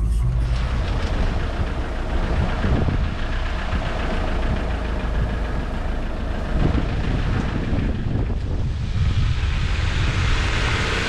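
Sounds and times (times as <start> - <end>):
off-road vehicle engine rumble: 0.0 - 11.0.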